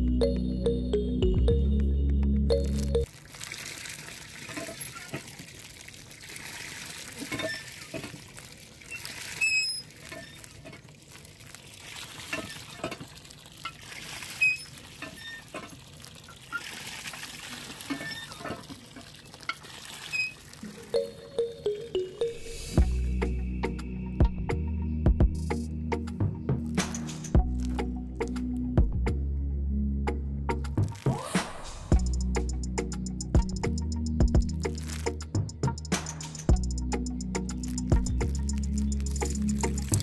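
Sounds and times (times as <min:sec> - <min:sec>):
background music: 0:00.0 - 0:03.1, 0:20.7 - 0:40.0
water pouring into plastic bucket: 0:03.0 - 0:21.1, 0:34.5 - 0:35.3, 0:37.5 - 0:40.0.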